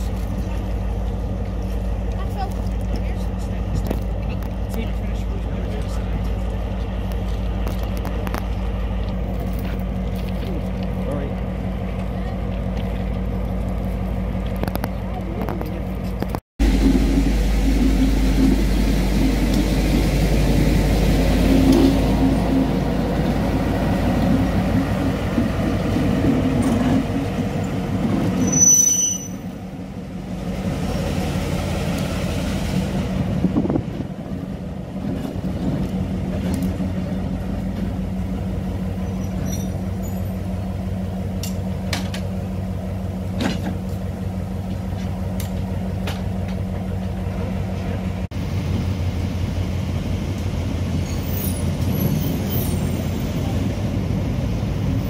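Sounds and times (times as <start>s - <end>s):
diesel locomotive engine: 0.0s - 55.0s
short high squeal: 28.4s - 29.5s, 51.0s - 53.2s.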